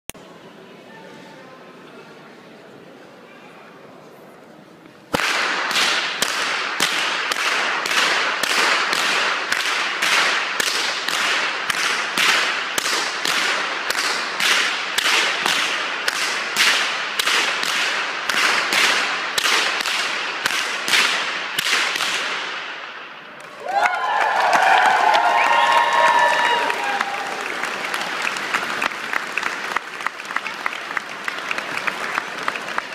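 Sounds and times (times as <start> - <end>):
whips cracking with echo: 5.1 - 23.6
applause and cheering: 23.4 - 32.9.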